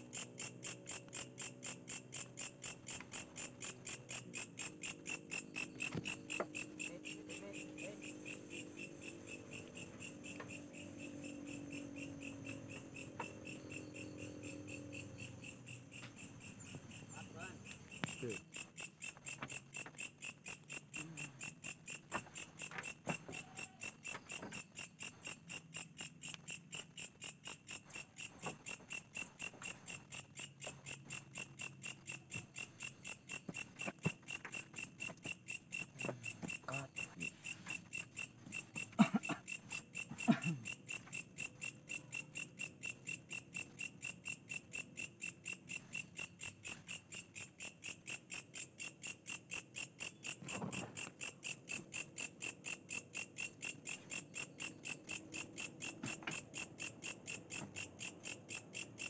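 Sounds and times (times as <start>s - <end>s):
crickets chirping: 0.0s - 59.0s.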